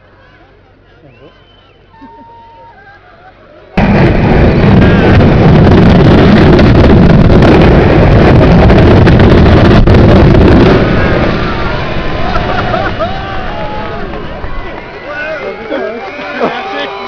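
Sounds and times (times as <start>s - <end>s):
low rumble: 3.8s - 15.7s.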